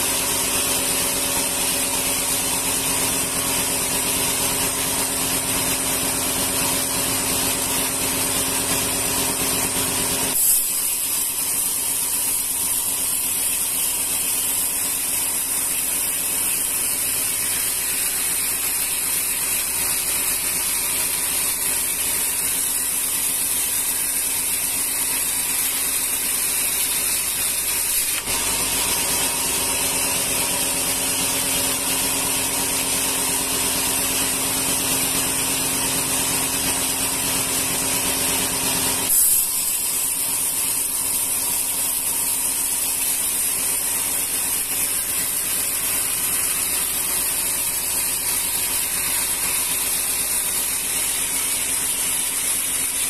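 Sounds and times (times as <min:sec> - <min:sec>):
band saw blade hissing: 0:10.3 - 0:31.5, 0:39.0 - 0:53.0.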